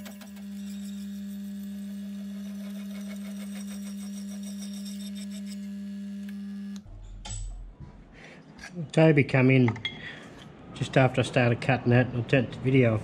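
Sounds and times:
milling machine motor hum: 0.0 - 6.9.

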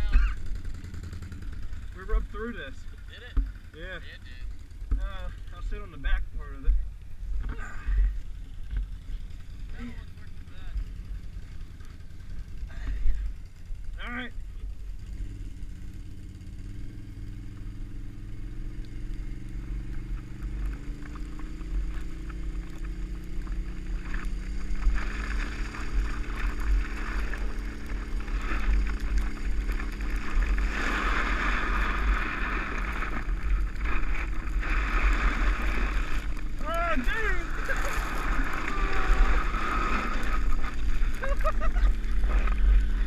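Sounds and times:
atv engine speeding up: 0.0 - 43.0
lid scraping over snowy road: 20.6 - 43.0.

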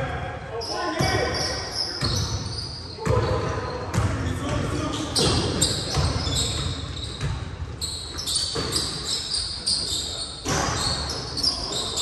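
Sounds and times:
thuds echoing in a hall: 2.0 - 9.1, 10.4 - 12.0.

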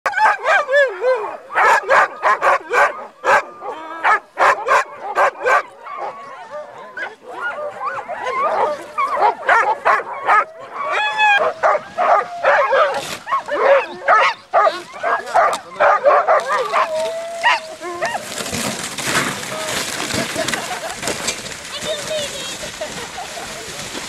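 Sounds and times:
dogs whining and yelping: 0.1 - 18.3
dogs barking and yipping: 0.1 - 18.5.

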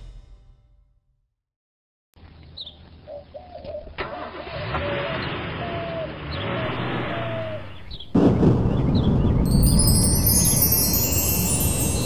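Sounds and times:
car engine and road noise: 4.0 - 8.1
birds chirping: 5.1 - 12.0.

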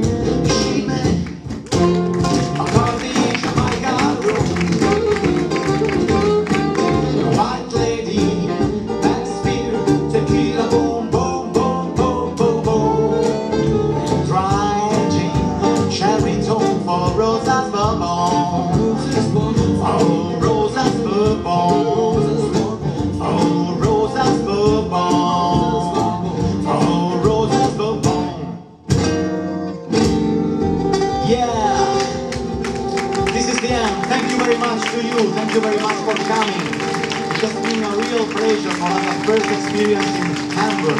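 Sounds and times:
cajon: 0.0 - 28.3, 29.9 - 40.9
acoustic guitars strumming: 0.0 - 40.9
double bass: 0.0 - 40.9
saxophone melody: 3.8 - 7.3.

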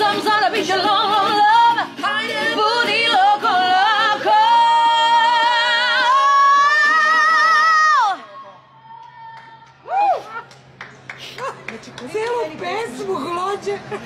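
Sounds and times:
woman singing: 0.0 - 8.2.

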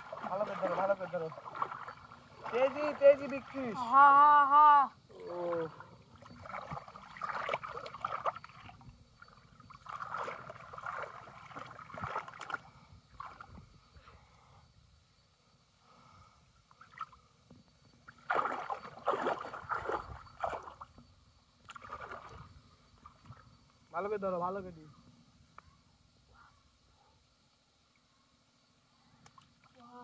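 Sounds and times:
muddy water splashing: 0.0 - 3.8, 5.1 - 13.7, 18.0 - 21.0, 21.6 - 23.5.

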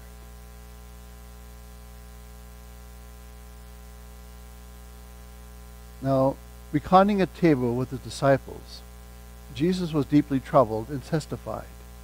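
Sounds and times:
electrical mains hum: 0.0 - 12.0
faint hiss: 5.7 - 12.0.

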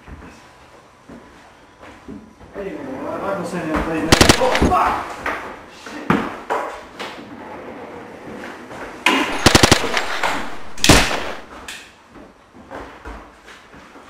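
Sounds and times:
rapid gunfire: 4.1 - 5.0, 9.3 - 11.5
loud bang: 9.3 - 11.5.

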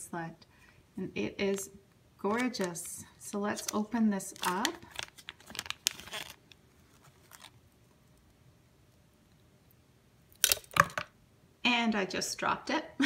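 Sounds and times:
plastic baggie crackling: 2.2 - 7.6.

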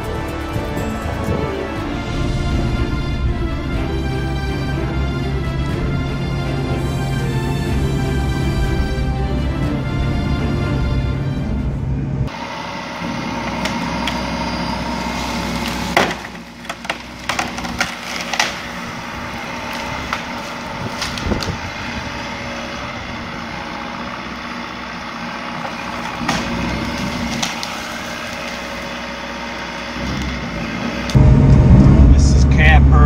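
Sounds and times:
excavator diesel engine running: 0.0 - 33.0
wood cracking and snapping: 15.2 - 22.3, 25.6 - 30.4.

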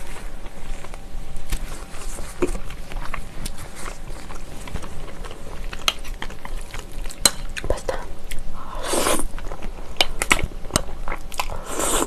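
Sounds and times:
close chewing: 2.1 - 8.4.

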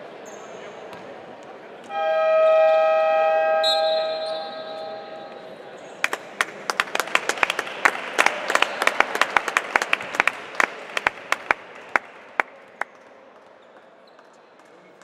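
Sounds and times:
crowd clapping: 6.0 - 15.0.

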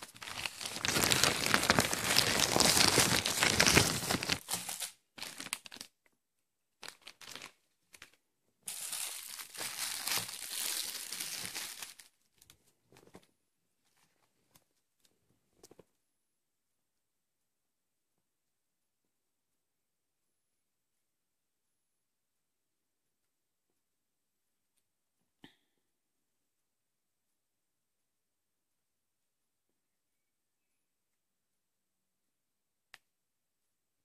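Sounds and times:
plastic bag crinkling: 0.0 - 5.9, 6.8 - 13.2
plastic rustling: 0.0 - 5.9, 6.8 - 15.8.

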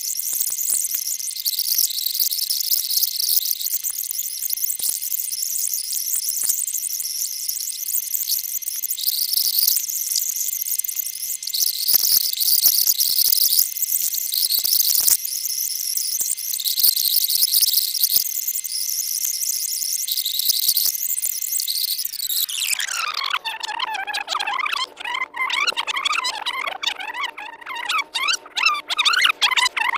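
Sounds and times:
scattered clicks: 0.0 - 22.8
videotape hiss and crackle: 0.0 - 23.0.

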